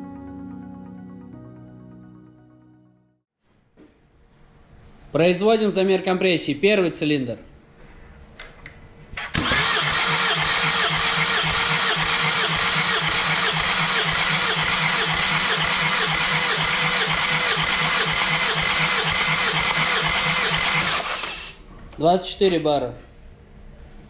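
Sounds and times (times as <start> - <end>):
starter motor cranking diesel engine: 9.2 - 21.6.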